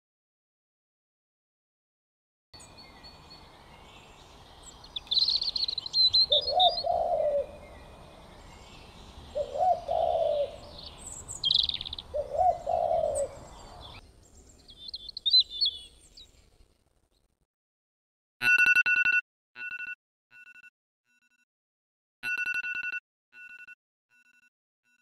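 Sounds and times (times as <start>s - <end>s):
low cooing bird calls: 2.6s - 16.4s
high bird chirps: 2.6s - 16.5s.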